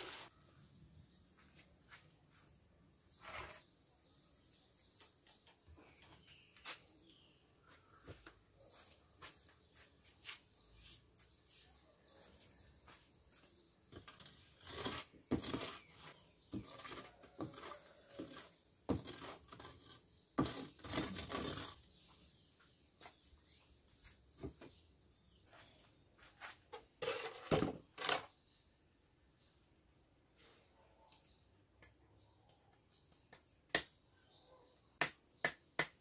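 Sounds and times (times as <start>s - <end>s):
tool scraping oven floor: 14.0s - 21.8s.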